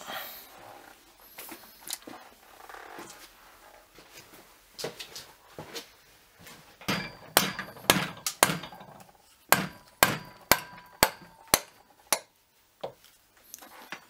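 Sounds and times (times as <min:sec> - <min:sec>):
sharp metal knocks with ring: 0:06.9 - 0:12.3.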